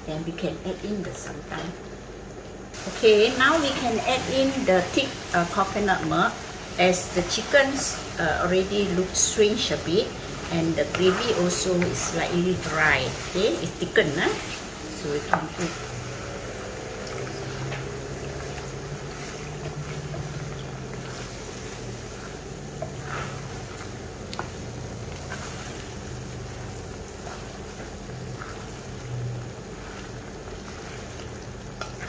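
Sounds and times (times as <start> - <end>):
food cooking in a wok: 0.0 - 32.0
spatula scraping a wok: 9.2 - 32.0.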